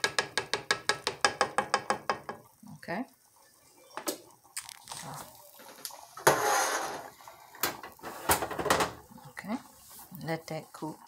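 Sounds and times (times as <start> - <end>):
sharp clicks and knocks: 0.0 - 2.5.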